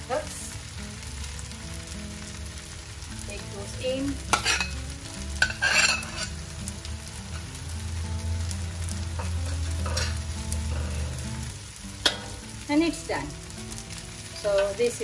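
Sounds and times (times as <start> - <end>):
frying sizzle: 0.0 - 15.0
metal spatula scraping wok: 4.3 - 4.8, 5.4 - 6.4, 9.2 - 12.4.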